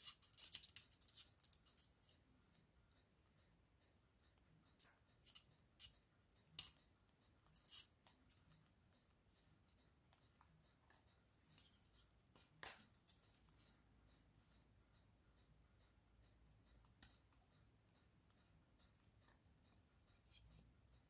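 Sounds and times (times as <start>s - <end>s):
small tools clicking: 0.0s - 2.2s, 4.2s - 6.0s, 6.6s - 8.6s
short tool scrapes: 7.6s - 7.9s.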